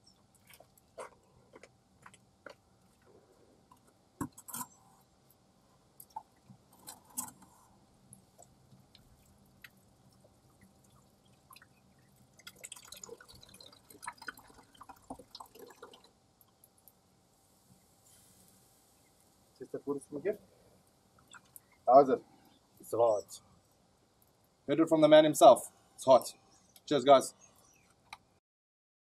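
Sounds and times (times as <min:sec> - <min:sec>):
water dripping into plastic bucket: 0:08.1 - 0:17.0, 0:20.8 - 0:21.9.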